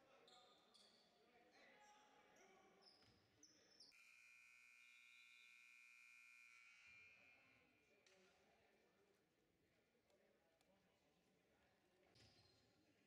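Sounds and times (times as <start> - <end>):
sneaker squeaks: 0.2 - 1.1.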